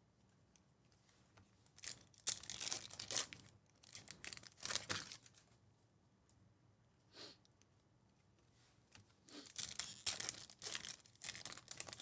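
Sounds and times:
foil wrapper tearing and crinkling: 1.8 - 5.4, 9.4 - 12.0.

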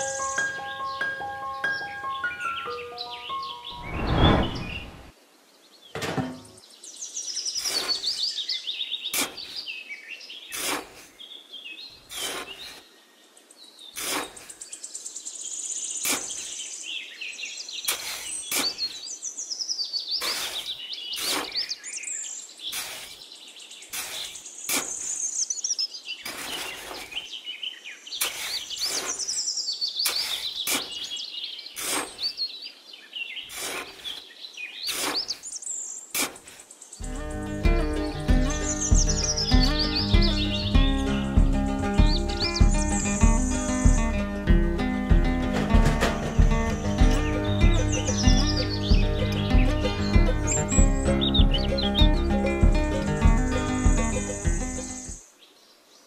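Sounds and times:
birds chirping and singing: 0.0 - 55.9
trowel digging into damp sand: 7.6 - 8.1, 9.1 - 9.6, 10.5 - 11.2, 12.1 - 12.8, 14.0 - 14.6, 16.0 - 16.6, 17.8 - 19.0, 20.2 - 21.8, 22.7 - 23.2, 23.9 - 25.2, 26.2 - 27.3, 28.2 - 29.3, 30.0 - 31.1, 31.8 - 32.3, 33.5 - 34.2, 34.9 - 35.5, 36.1 - 36.7.

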